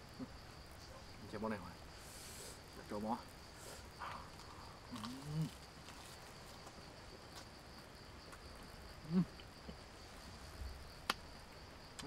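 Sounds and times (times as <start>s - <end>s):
high insect chirr: 0.0s - 12.0s
man humming while eating: 9.0s - 9.4s.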